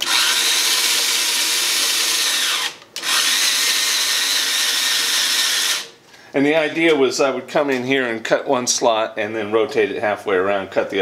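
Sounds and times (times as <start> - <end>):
electric screwdriver whirring: 0.0 - 5.9.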